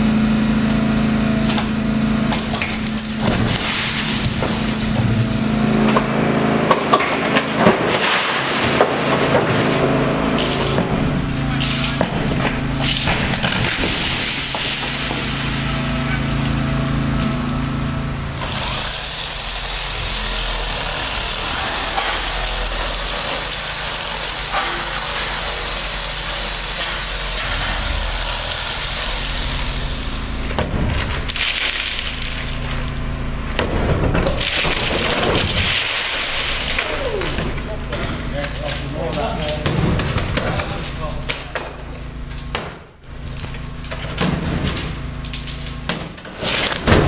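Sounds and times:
demolition machine running: 0:00.0 - 0:47.0
loud hissing rush: 0:18.3 - 0:30.5.

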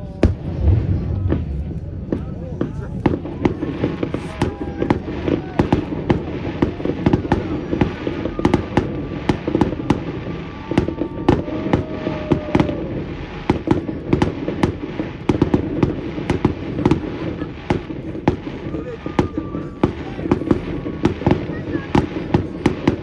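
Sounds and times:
low rumble: 0:00.0 - 0:14.2
fireworks bangs and crackles: 0:00.0 - 0:23.0.

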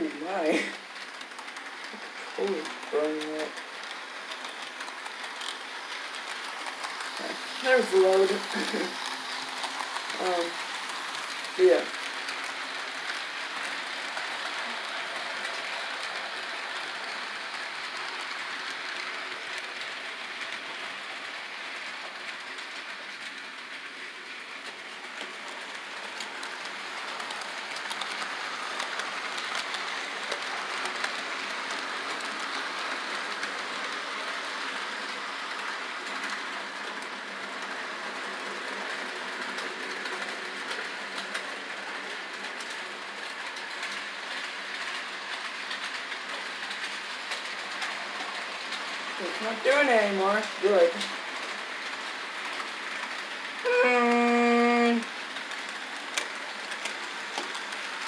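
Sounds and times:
model train wheels rattling: 0:00.0 - 0:58.0.

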